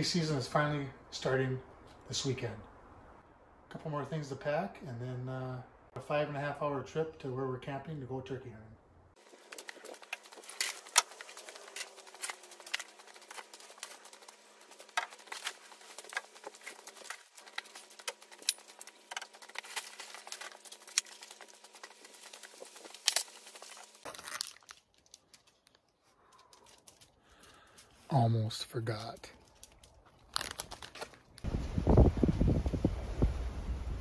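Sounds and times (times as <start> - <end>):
gear clicks and knocks: 9.2 - 24.1
bags and fabric rustling: 9.2 - 27.2, 29.4 - 31.4.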